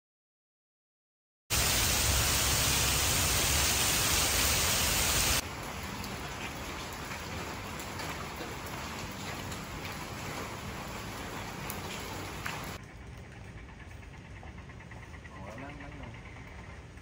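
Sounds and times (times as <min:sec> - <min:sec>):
heavy rain: 0:01.5 - 0:12.8
water pouring off roof eave: 0:01.5 - 0:12.8.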